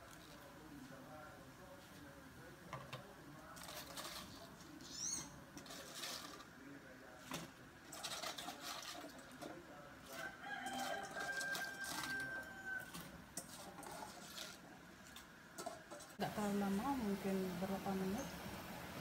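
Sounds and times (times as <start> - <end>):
metal pot clattering: 7.3 - 16.2
rooster crowing: 10.1 - 13.1.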